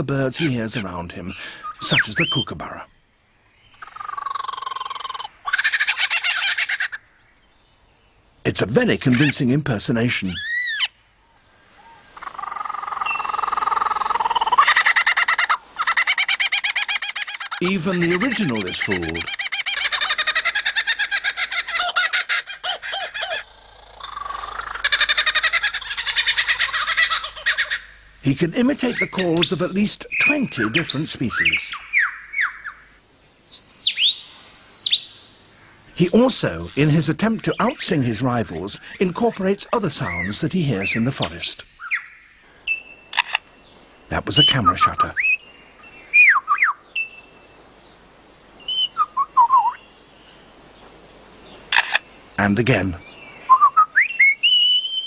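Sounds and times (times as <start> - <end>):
kookaburra cackling calls: 0.0 - 2.5, 3.7 - 7.1, 10.3 - 11.0, 11.8 - 28.0, 28.6 - 32.9, 36.5 - 43.5, 44.1 - 45.4, 51.6 - 52.1
lyrebird whistled song: 1.6 - 2.6, 30.1 - 35.2, 44.4 - 47.6, 48.6 - 50.0, 53.0 - 55.0.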